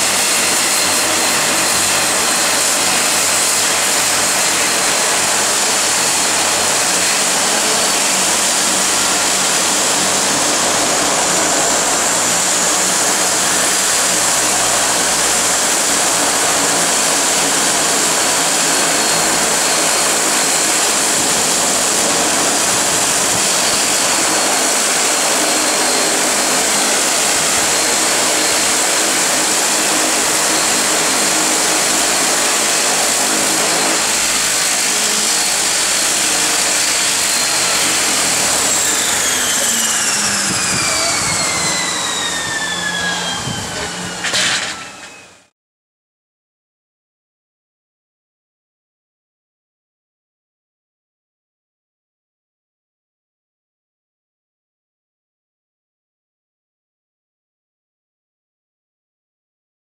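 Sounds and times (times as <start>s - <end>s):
loud rushing hiss: 0.0s - 45.4s
turboprop engines running: 0.0s - 45.4s.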